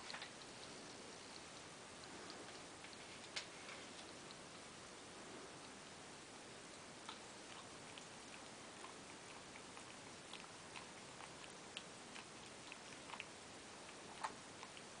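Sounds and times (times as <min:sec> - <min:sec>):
background hiss: 0:00.0 - 0:15.0.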